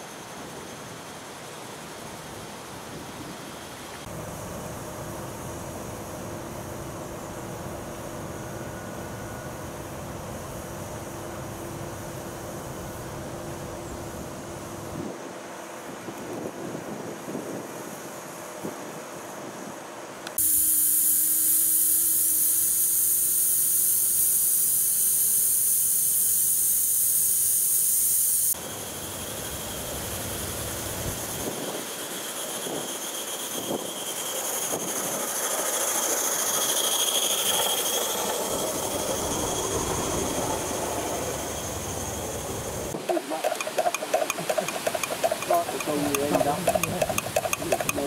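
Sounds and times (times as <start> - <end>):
steam hissing: 20.4 - 48.0
model train running on track: 28.6 - 48.0.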